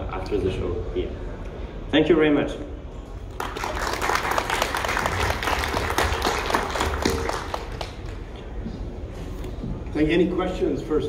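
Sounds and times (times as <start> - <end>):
audience applauding: 3.3 - 8.4.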